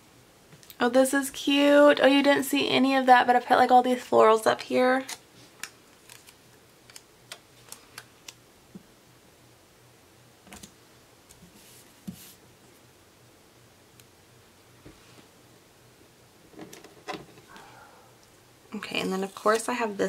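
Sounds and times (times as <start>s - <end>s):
soft rub on paper: 11.4s - 12.4s.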